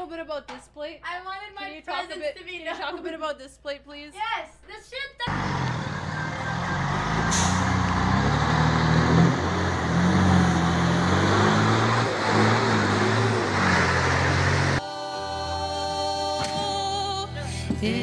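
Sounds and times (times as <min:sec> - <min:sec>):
bus engine running: 0:05.3 - 0:14.8
road rumble noise: 0:05.3 - 0:14.8
choir singing with band: 0:14.6 - 0:18.0.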